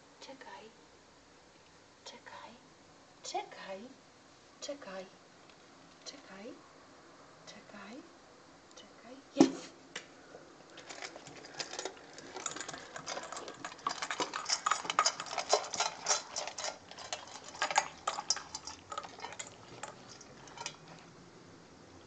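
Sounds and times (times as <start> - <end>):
dog crunching kibble in metal bowl: 10.7 - 21.2.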